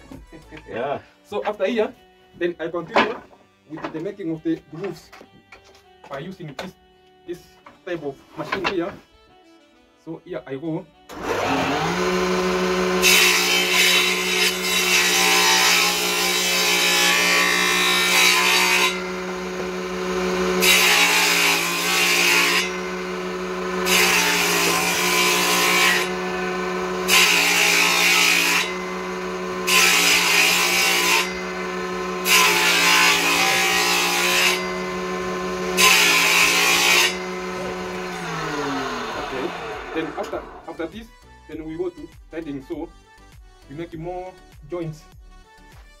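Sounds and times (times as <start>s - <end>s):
harsh wood-cutting noise: 0.0s - 6.9s, 11.0s - 40.9s
woodworking machine humming: 11.1s - 40.6s.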